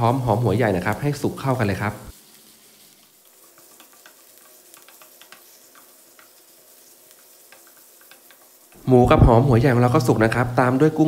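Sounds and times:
meat sizzling in a frying pan: 0.0 - 11.0
spatula scraping a pan: 2.1 - 8.8.

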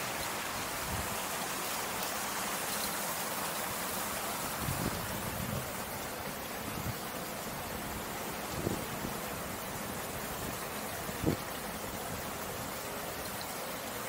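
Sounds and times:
water hissing: 0.0 - 14.0.

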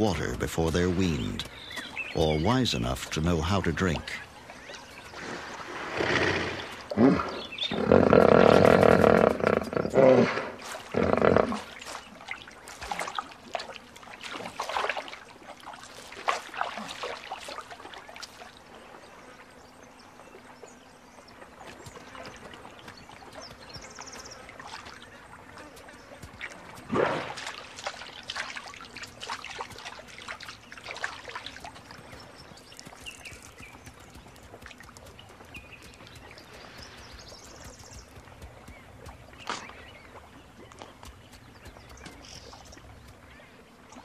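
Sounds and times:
water sounds: 0.0 - 44.0
large wild animal calling: 6.0 - 11.6.

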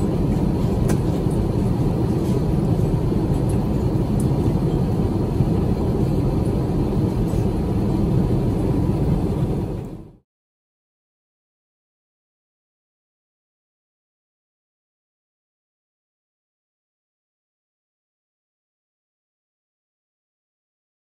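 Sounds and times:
airplane cabin roar: 0.0 - 10.2.

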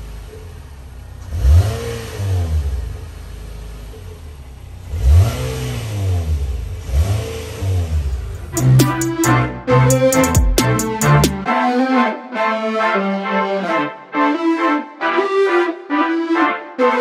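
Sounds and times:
car engine idling and revving: 0.0 - 11.4.

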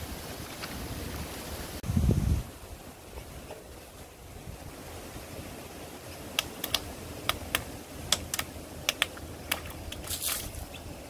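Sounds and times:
water splashing: 6.4 - 10.9.

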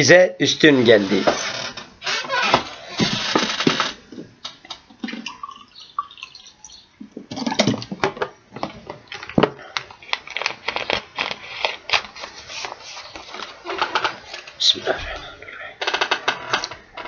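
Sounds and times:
water pouring into a glass: 5.1 - 6.8
faint handling sounds: 8.6 - 16.8.

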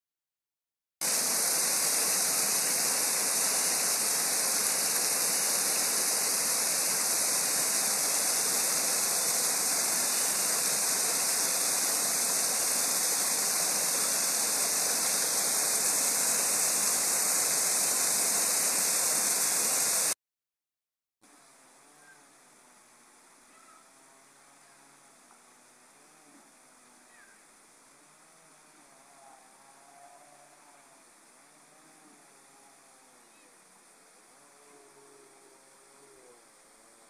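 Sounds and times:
waterfall pouring onto rocks: 1.0 - 20.2.

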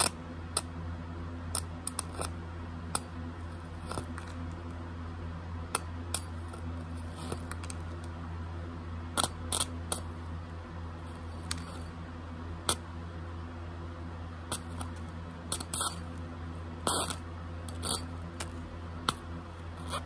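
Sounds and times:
electric arc crackling: 14.5 - 16.2, 16.8 - 20.0.

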